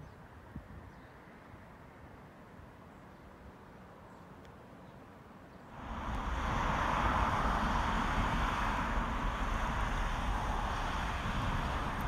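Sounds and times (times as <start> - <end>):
faint outdoor ambience: 0.0 - 12.0
steady rushing noise with rumble: 5.7 - 12.0.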